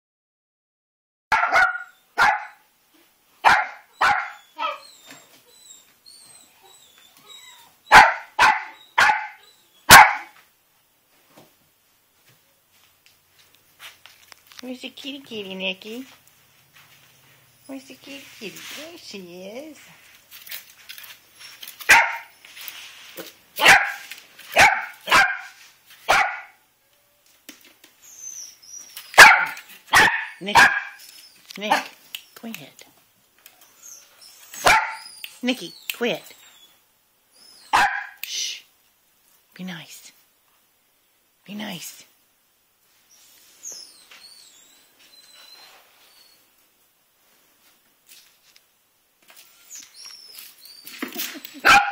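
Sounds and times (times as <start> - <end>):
puppy barking: 1.3 - 2.6, 3.4 - 4.8, 7.9 - 10.4, 21.9 - 22.3, 23.6 - 26.6, 29.2 - 31.0, 31.7 - 32.0, 34.6 - 35.1, 37.7 - 38.2, 51.6 - 51.9
small dog yapping: 1.3 - 2.6, 3.4 - 5.2, 7.2 - 10.4, 21.8 - 22.3, 23.6 - 26.6, 29.1 - 31.1, 34.5 - 35.4, 37.6 - 38.2, 50.8 - 51.9.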